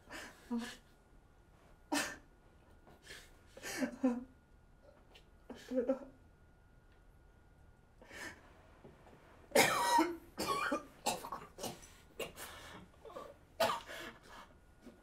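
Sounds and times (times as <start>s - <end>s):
man coughing: 9.6s - 12.5s, 13.6s - 14.0s.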